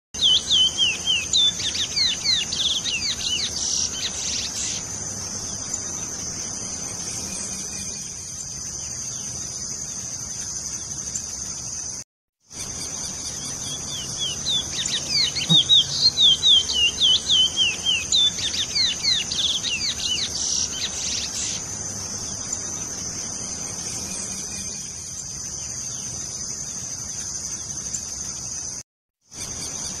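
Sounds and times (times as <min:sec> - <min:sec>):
finch singing whistled notes: 0:00.2 - 0:04.8, 0:12.6 - 0:21.6
high insect drone: 0:00.2 - 0:30.0.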